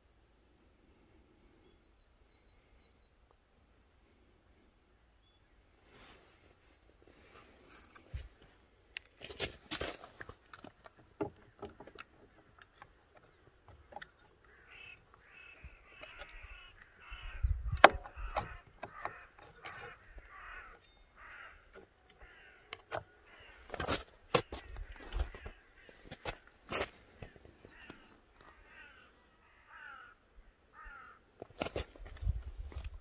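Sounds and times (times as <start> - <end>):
clicks and knocks of scooter parts: 9.0 - 28.0
crow cawing: 14.4 - 23.7, 27.2 - 31.3.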